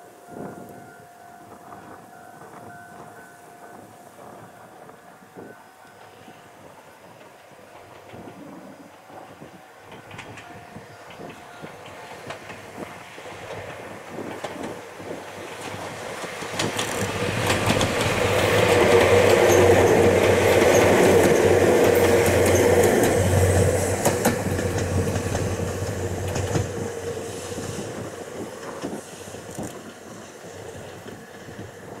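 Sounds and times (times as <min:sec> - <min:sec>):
electric train running: 0:03.7 - 0:32.0
wheels clacking over rail joints: 0:07.2 - 0:32.0.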